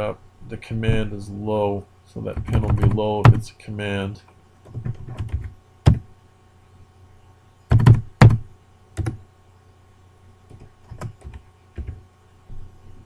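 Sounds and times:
computer keyboard keystrokes: 4.7s - 6.0s, 7.7s - 8.4s, 9.0s - 9.2s, 10.5s - 12.0s.

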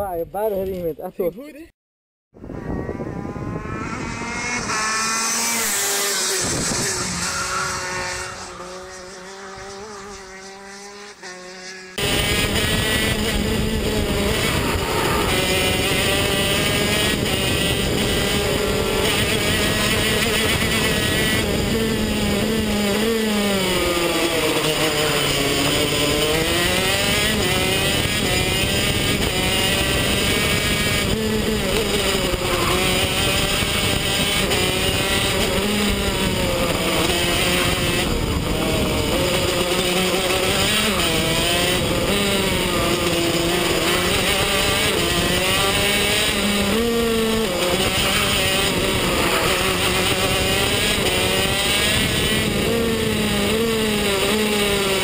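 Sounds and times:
kart engines passing: 2.4s - 55.0s
two-stroke kart engine running hard: 2.4s - 55.0s.

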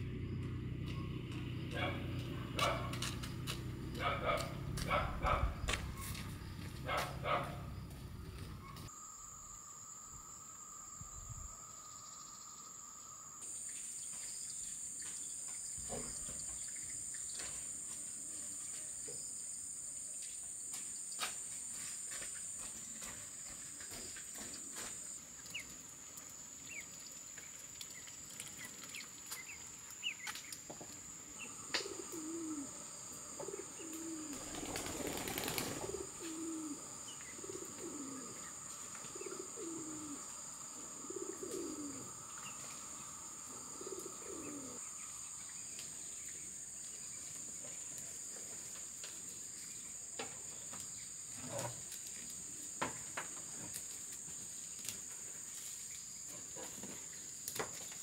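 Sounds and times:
high insect drone: 0.0s - 58.0s
low cooing bird calls: 31.3s - 46.4s.

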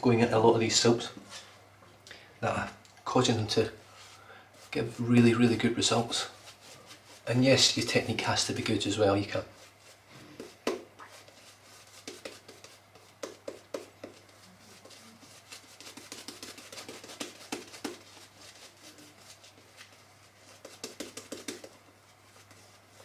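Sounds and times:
shaving brush lathering face: 8.9s - 23.0s.

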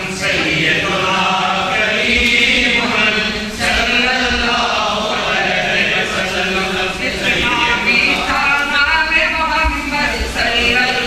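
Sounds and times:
men chanting together: 0.0s - 11.0s.

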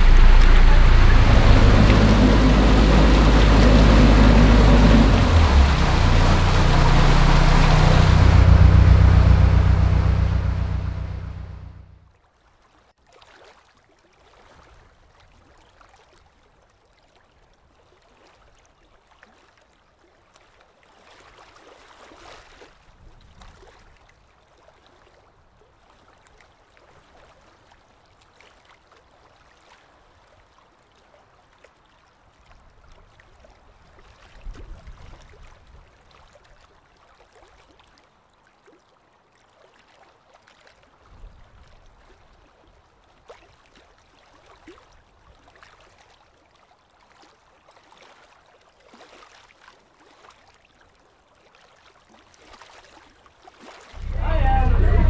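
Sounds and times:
low rumbles: 0.0s - 12.0s, 54.0s - 55.0s.

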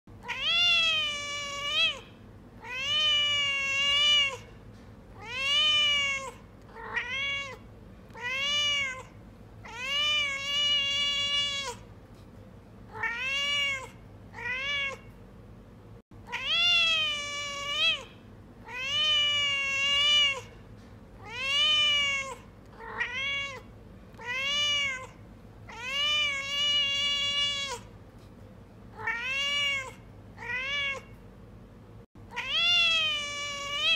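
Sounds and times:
cat meowing: 0.2s - 4.5s, 5.2s - 11.9s, 12.9s - 15.1s, 16.2s - 20.5s, 21.2s - 27.9s, 29.0s - 31.1s, 32.3s - 33.9s.

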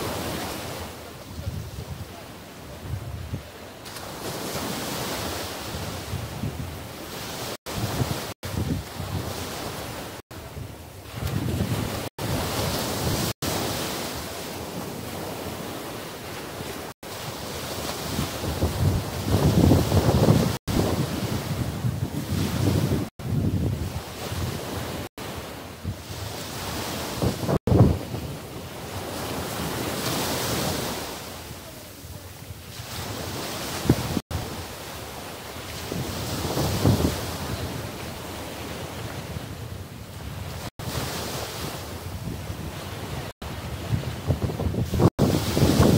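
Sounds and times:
wind buffeting microphone: 0.0s - 3.6s, 4.3s - 34.7s, 35.6s - 45.9s
small waves washing on beach: 0.0s - 45.9s
small surf breaking on sand: 44.3s - 45.9s.

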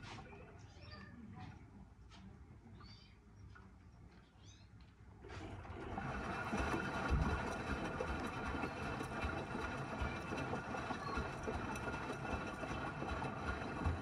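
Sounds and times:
washing machine motor humming: 5.2s - 14.0s
water sloshing in drum: 5.3s - 14.0s.

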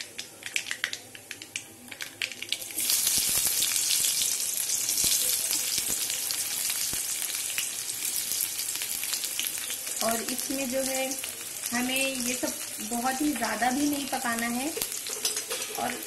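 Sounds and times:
seeds crackling in hot oil: 0.0s - 16.0s
onion sizzling in oil: 2.0s - 16.0s.

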